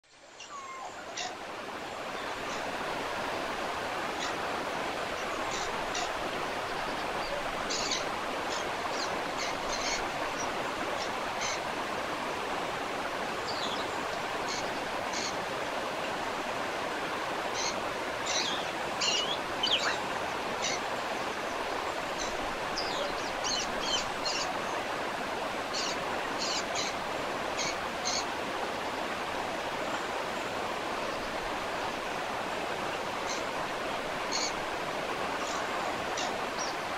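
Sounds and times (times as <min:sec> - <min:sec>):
waterfall rushing: 0:00.2 - 0:36.9.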